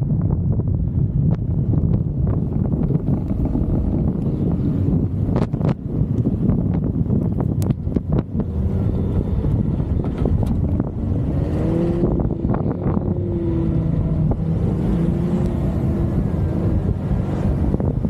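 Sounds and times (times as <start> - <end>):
vehicle rumbling in motion: 0.0 - 18.0.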